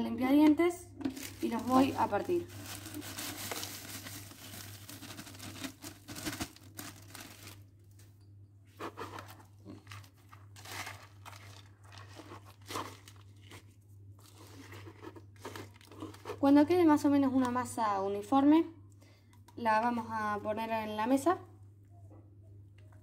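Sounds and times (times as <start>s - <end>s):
faint low hum: 0.0s - 23.0s
plastic bag crinkling: 1.0s - 8.2s, 9.1s - 16.4s
spoon stirring and scraping: 8.2s - 10.5s, 11.4s - 16.5s.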